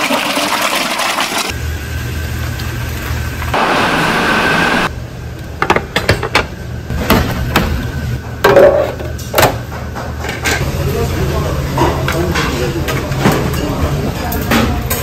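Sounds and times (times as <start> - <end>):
dishes and utensils clattering: 8.4 - 10.6, 11.7 - 15.0.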